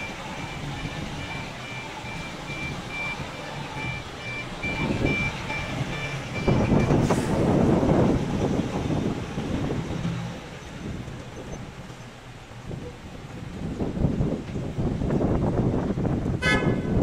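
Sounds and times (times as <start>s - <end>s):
short high beeps: 0.0s - 7.0s
heavy diesel truck engine: 0.0s - 16.6s.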